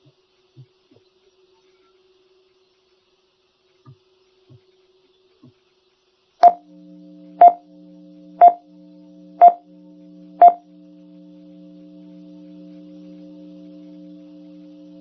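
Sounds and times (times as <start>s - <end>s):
short electronic beeps: 6.4s - 6.6s, 8.4s - 8.6s, 9.4s - 9.6s, 10.4s - 10.6s
low multi-tone drone: 6.4s - 15.0s.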